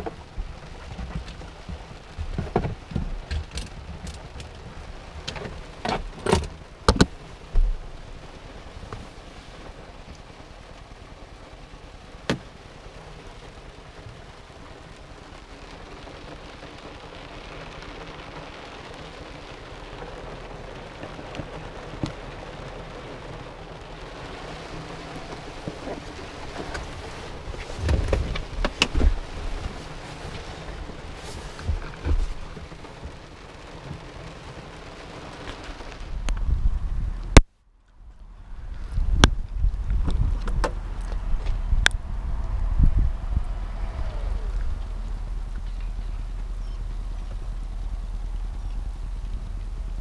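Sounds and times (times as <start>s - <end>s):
low knocks and thumps: 0.0s - 7.9s, 25.2s - 33.2s, 38.8s - 43.5s
rain on car: 0.0s - 50.0s.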